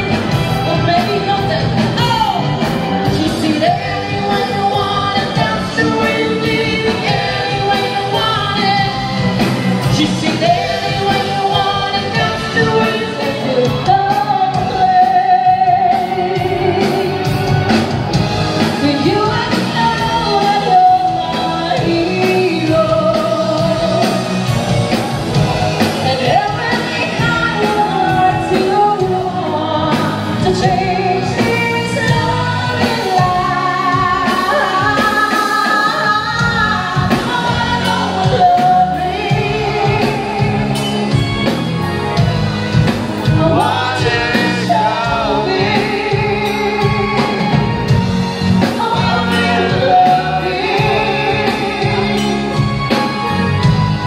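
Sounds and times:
song with singing voice: 0.0s - 54.0s.

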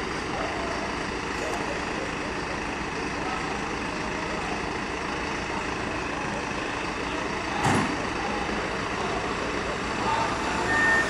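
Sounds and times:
fire truck engines idling: 0.0s - 11.0s.

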